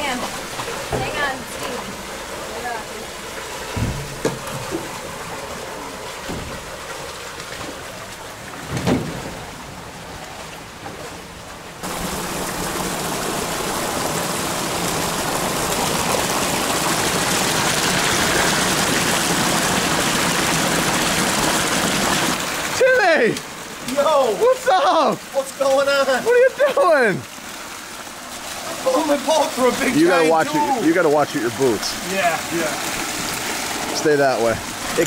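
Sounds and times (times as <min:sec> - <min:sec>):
water running through culvert: 0:00.0 - 0:35.0
knocks on aluminum canoe: 0:03.7 - 0:04.9, 0:08.7 - 0:09.3.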